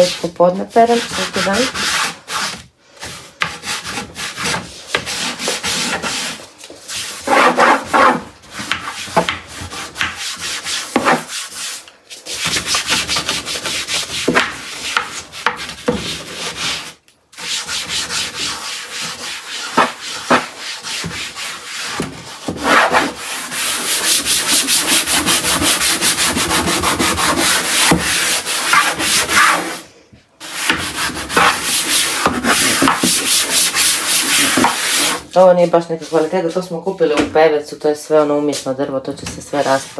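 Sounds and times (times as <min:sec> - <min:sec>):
sponge scrubbing wood: 0:00.0 - 0:29.8, 0:30.4 - 0:36.4.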